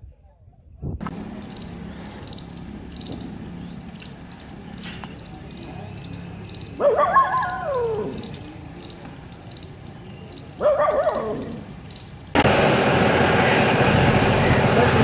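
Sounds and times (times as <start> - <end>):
wavering animal calls: 1.2 - 12.2.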